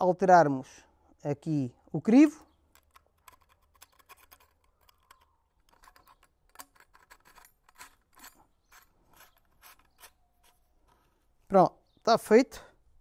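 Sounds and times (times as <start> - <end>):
metal clicks and scrapes: 2.1 - 11.2.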